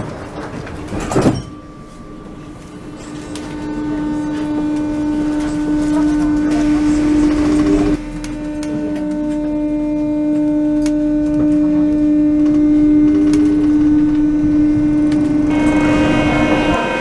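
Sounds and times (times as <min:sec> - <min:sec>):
train motors whining: 0:00.0 - 0:17.0
rising tone: 0:13.9 - 0:17.0.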